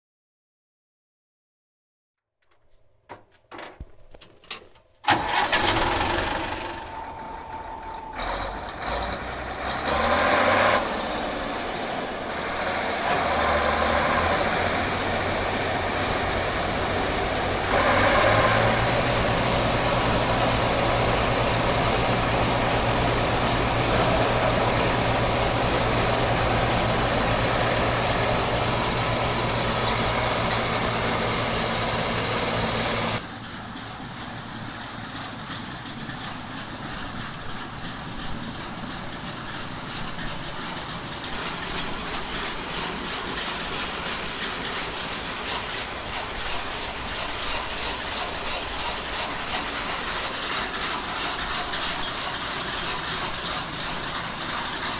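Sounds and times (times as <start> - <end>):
combine harvester engine and threshing: 2.4 - 54.9
tractor engine running unevenly: 2.5 - 54.9
short hissing bursts: 42.9 - 47.4.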